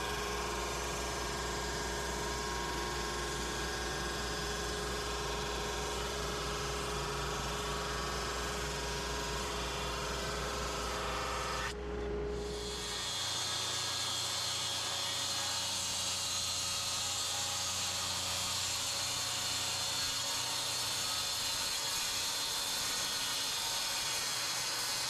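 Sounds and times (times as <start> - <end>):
machinery whirring with hiss: 12.4 - 25.0.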